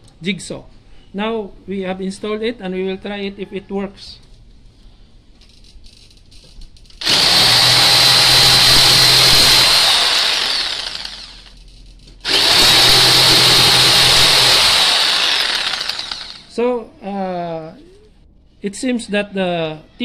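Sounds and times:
electric jigsaw running: 7.0 - 11.6, 12.2 - 16.5.

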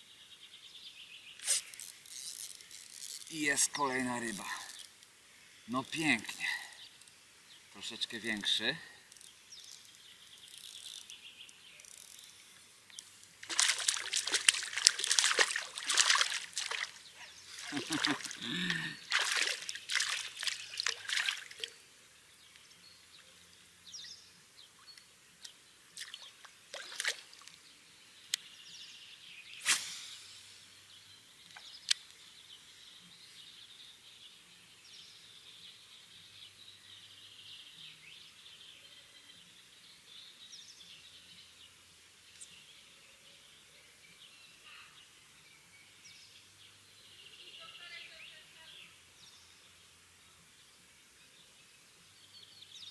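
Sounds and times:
waterside ambience: 0.0 - 29.3
birds chirping: 0.0 - 29.6, 30.7 - 52.9
small splashes: 13.4 - 21.8, 25.9 - 27.6.

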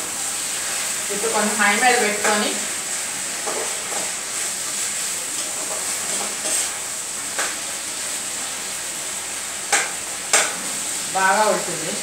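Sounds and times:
curry sizzling in a pan: 0.0 - 12.0
spatula scraping a pan: 0.4 - 8.2.

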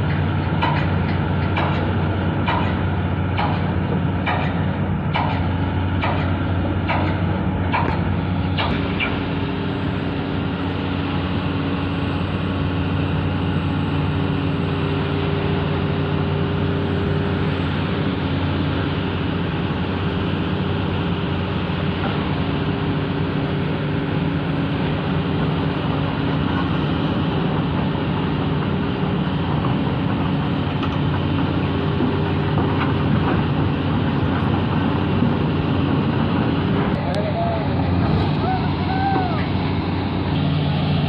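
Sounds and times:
excavator diesel engine running: 0.0 - 41.0.

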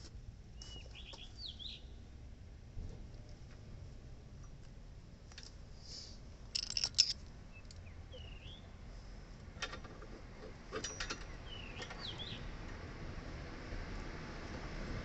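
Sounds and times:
small bird chirping: 0.6 - 2.0, 7.5 - 8.7, 11.3 - 12.5.

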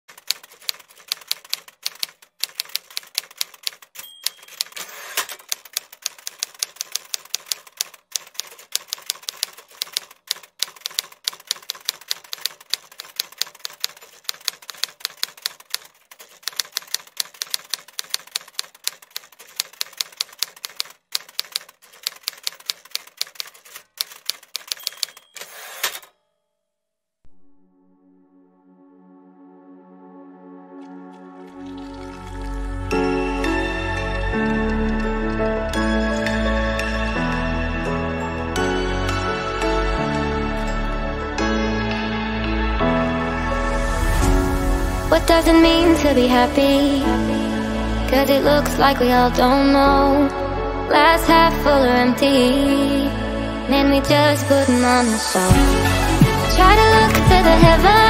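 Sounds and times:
typewriter keystroke clicks: 0.1 - 26.1
typewriter bell ringing: 0.4 - 15.7, 19.5 - 26.4.

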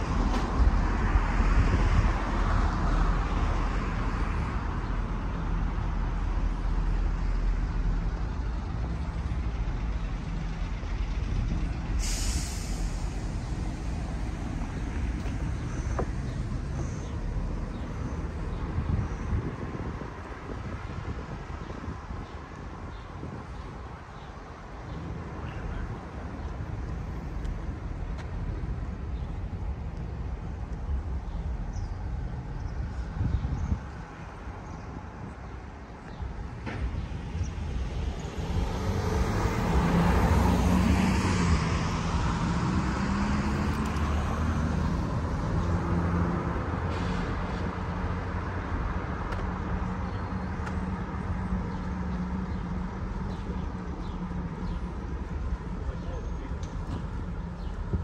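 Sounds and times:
road traffic rumble: 0.0 - 58.0
vehicle passing close: 36.8 - 50.0.

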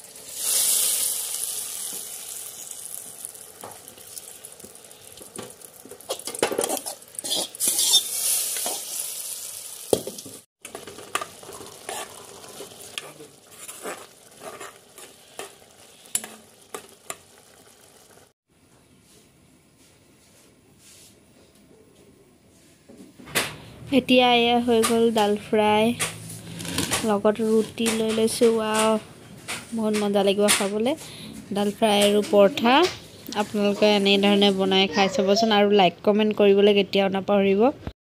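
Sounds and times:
spices sizzling in hot oil: 0.0 - 18.4
wooden spatula scraping pan: 6.0 - 8.9, 10.9 - 15.6.

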